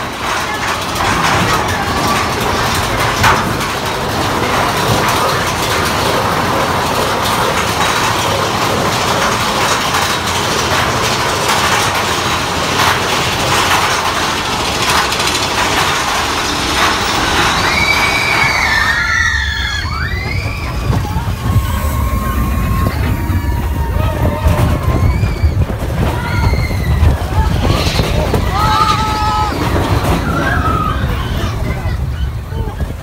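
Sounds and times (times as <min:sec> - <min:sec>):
roller coaster cars rattling: 0:00.0 - 0:33.0
high squeals: 0:15.0 - 0:32.4.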